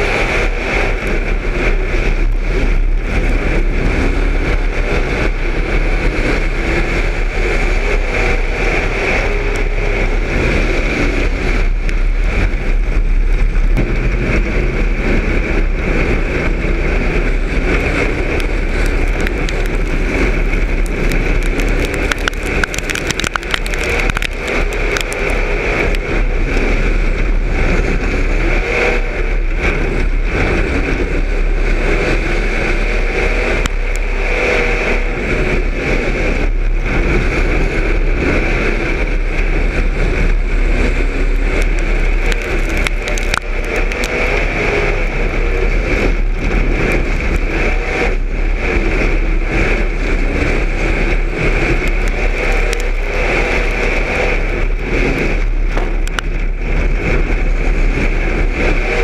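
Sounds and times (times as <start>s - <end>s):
race car engine running hard: 0.0s - 59.0s
sharp clicks and rattles: 17.3s - 26.7s, 41.0s - 44.6s, 51.4s - 57.2s.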